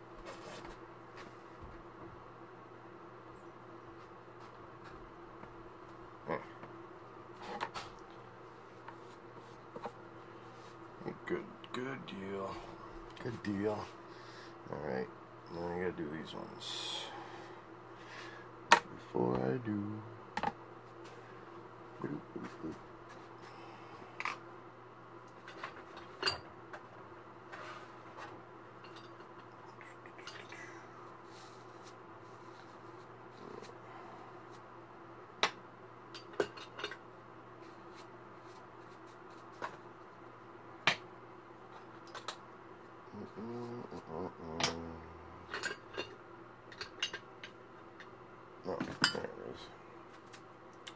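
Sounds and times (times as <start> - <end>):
steady low hum: 0.0 - 50.9.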